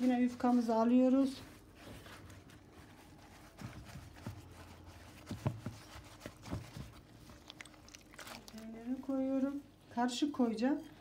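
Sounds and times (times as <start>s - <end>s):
soft knocks and handling: 1.4s - 7.7s.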